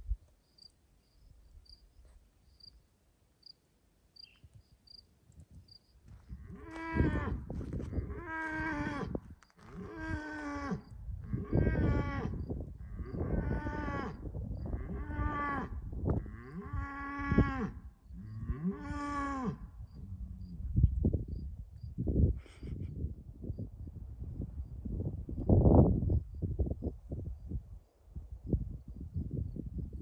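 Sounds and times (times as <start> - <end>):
cricket chirps: 0.2 - 22.7, 23.4 - 24.0, 24.6 - 30.0
cow mooing: 6.4 - 7.4, 8.0 - 14.2, 14.8 - 20.6.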